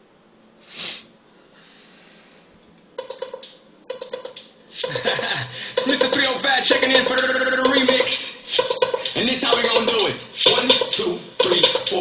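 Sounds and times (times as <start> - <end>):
person sniffing: 0.6 - 1.1
music track with beat: 2.9 - 12.0.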